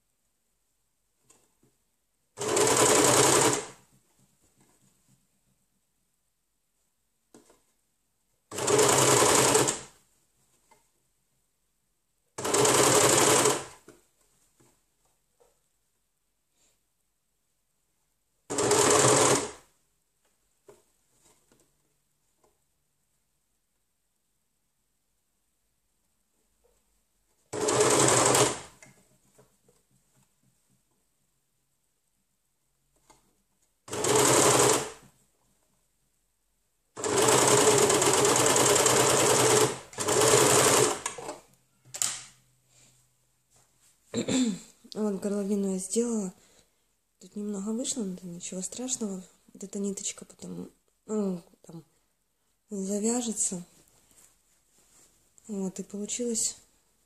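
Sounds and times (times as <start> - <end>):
electric sewing machine stitching: 2.4 - 3.8, 8.5 - 10.0, 12.4 - 13.8, 18.5 - 19.6, 27.5 - 28.8, 33.9 - 35.0, 37.0 - 41.4.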